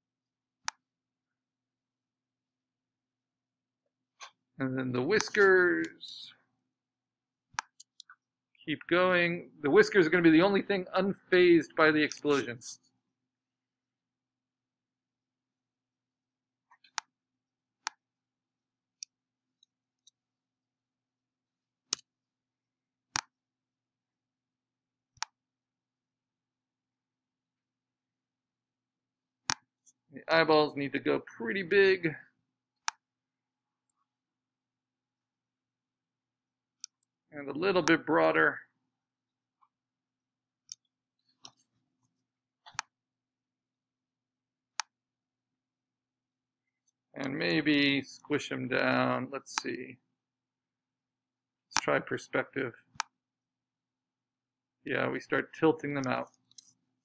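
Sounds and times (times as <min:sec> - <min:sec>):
mouse and keyboard clicks: 0:12.1 - 0:12.7, 0:42.6 - 0:42.9
computer mouse clicks: 0:42.6 - 0:42.9.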